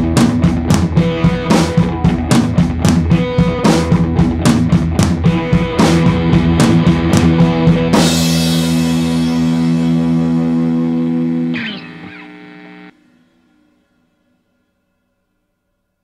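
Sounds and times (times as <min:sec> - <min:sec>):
rock music: 0:00.0 - 0:13.0
guitar chord ringing: 0:05.3 - 0:14.7.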